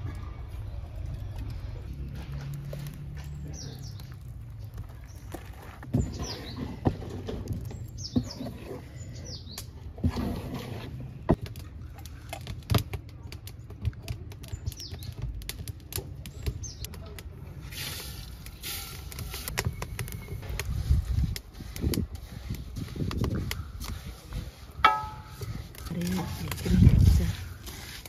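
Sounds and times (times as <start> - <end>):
bird chirping: 7.6 - 9.7
wooden spoon and pots clicking: 24.8 - 26.9.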